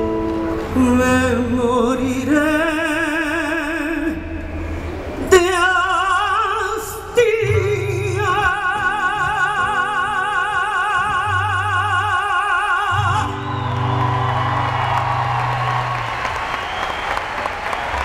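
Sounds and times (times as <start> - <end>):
woman singing with vibrato: 0.7 - 4.2.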